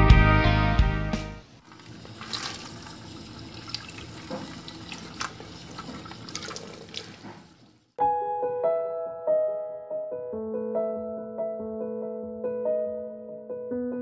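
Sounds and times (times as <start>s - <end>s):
small splashes and drips: 1.6s - 7.7s
running water: 1.6s - 7.9s.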